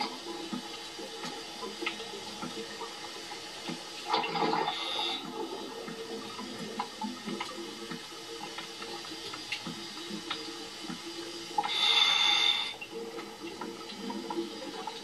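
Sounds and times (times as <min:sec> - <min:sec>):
water noise through tv speaker: 0:00.0 - 0:15.0.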